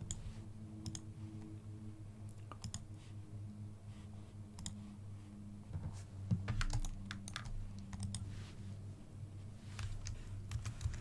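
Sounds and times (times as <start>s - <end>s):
faint low hum: 0.0s - 11.0s
computer mouse clicks: 0.8s - 1.5s, 2.3s - 2.9s, 4.6s - 4.8s, 6.3s - 8.3s, 9.8s - 11.0s.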